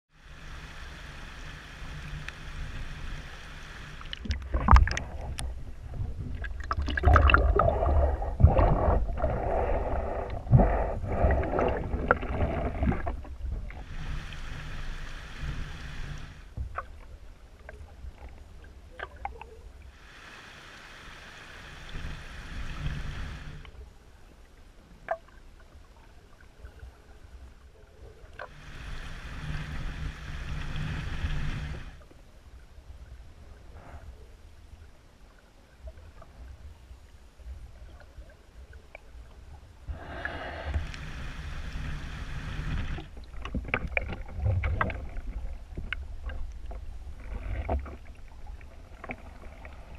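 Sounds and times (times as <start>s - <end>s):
sharp clicks and knocks underwater: 4.0s - 7.8s, 42.8s - 48.2s.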